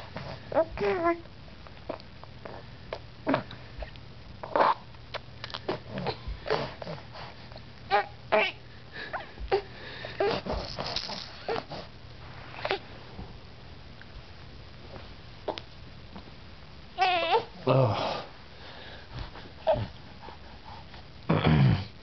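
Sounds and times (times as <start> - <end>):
baby grunting: 9.5 - 11.8, 19.6 - 19.9.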